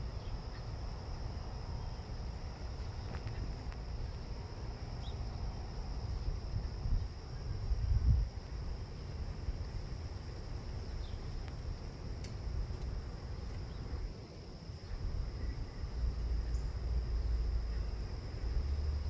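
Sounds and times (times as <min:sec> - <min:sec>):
insect drone: 0:00.0 - 0:19.0
faint ticks: 0:11.0 - 0:13.8.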